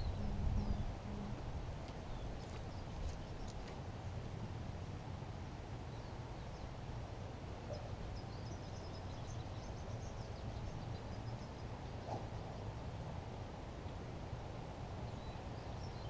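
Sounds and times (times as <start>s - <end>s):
low rumbling noise: 0.0s - 6.0s
small birds chirping: 2.0s - 3.8s, 7.6s - 12.9s.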